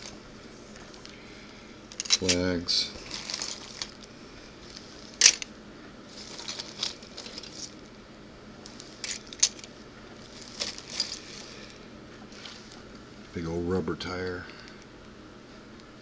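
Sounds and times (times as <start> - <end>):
plastic parts clicking and clattering: 1.9 - 2.4, 5.2 - 5.5, 9.0 - 9.7.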